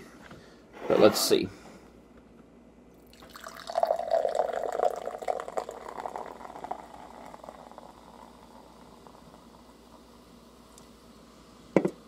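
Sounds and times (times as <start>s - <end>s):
soda pouring into a glass: 3.0s - 10.2s.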